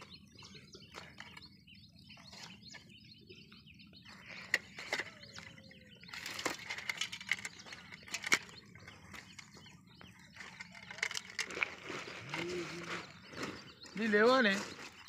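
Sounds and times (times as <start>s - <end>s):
birds chirping: 0.0s - 15.0s
fish handled on plastic tarp: 10.4s - 15.0s.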